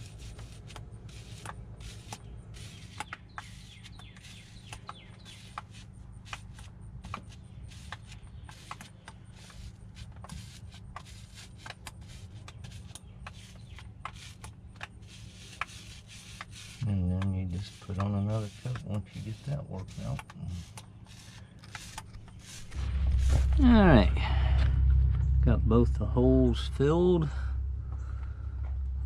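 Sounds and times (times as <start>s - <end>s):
low steady hum: 0.0s - 29.0s
roller clicking on wet resin: 0.1s - 22.8s.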